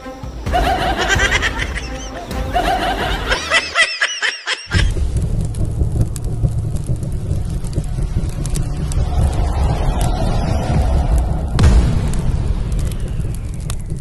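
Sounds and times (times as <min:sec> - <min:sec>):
fire and explosion rumble: 0:04.7 - 0:14.0.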